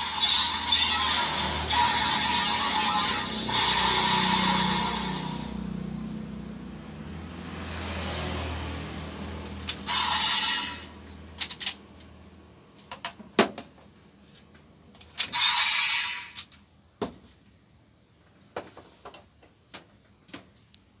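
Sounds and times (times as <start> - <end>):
electronic toy sound effect: 0.0 - 5.4, 9.7 - 10.9, 15.2 - 16.4
toy belt plastic clicks: 11.4 - 11.8.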